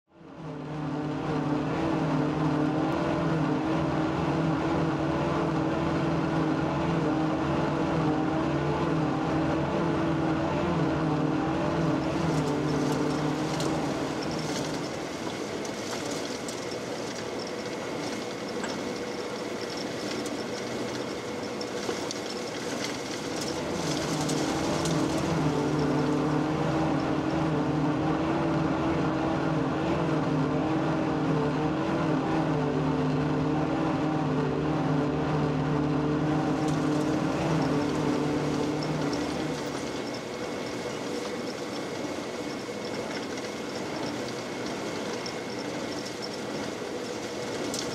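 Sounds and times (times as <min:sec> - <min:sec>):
diesel engine running: 0:00.1 - 0:47.9
hissing and rattling: 0:12.0 - 0:27.4.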